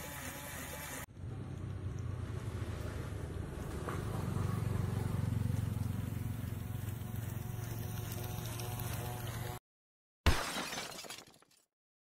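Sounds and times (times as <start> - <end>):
small electric motor whirring: 0.0 - 1.1, 5.1 - 9.6.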